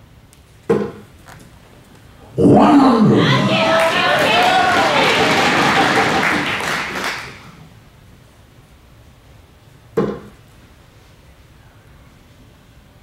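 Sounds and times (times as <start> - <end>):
crowd applause: 2.4 - 7.6
dart striking dartboard: 10.0 - 10.3.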